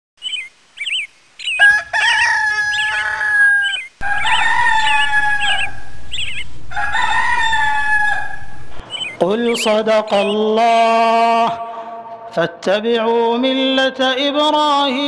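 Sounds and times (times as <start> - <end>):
high bird chirps: 0.2 - 11.0
rooster crowing: 1.4 - 9.2.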